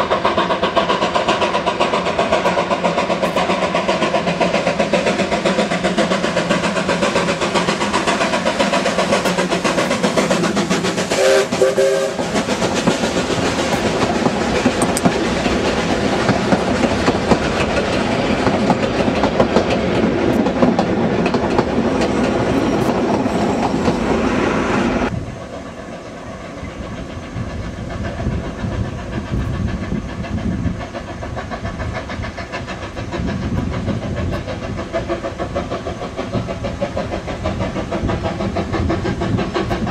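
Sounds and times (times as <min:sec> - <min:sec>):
carriages clattering over rail joints: 0:00.0 - 0:24.3
steam locomotive running: 0:00.0 - 0:39.9
steam whistle: 0:11.1 - 0:12.3.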